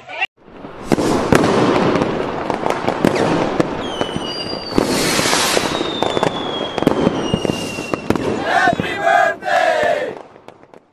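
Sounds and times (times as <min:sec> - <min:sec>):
fireworks crackling and popping: 0:00.4 - 0:10.9
hissing firework burst: 0:00.5 - 0:08.8
falling firework whistle: 0:02.6 - 0:08.8.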